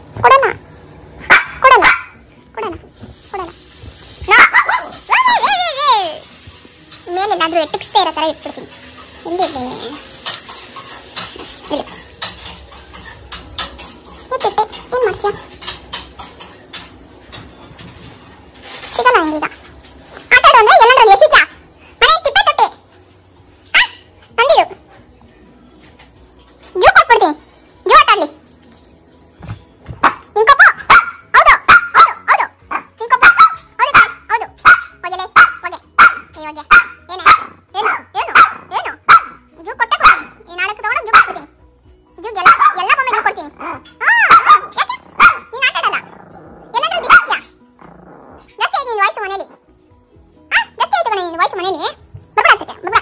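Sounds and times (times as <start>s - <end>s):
dog barking sharply: 30.0s - 37.5s, 44.1s - 45.4s.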